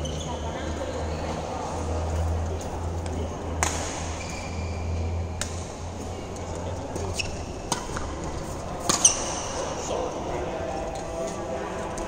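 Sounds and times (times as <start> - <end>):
shoe squeaks: 0.0 - 1.1, 4.1 - 5.2, 7.0 - 7.7, 8.9 - 9.6
rackets hitting shuttlecock: 3.0 - 4.6, 5.3 - 6.1, 6.9 - 9.7.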